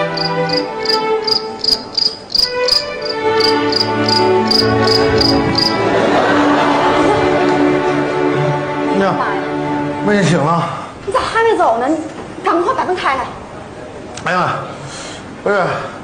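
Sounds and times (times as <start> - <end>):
cricket chirps: 0.0 - 5.8
soft background music: 0.0 - 10.8.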